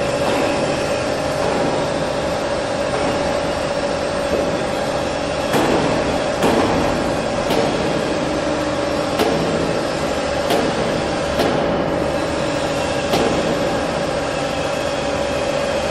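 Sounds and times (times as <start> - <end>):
industrial machinery humming: 0.0 - 15.9
sharp metallic knocks: 5.5 - 8.5, 9.1 - 11.9.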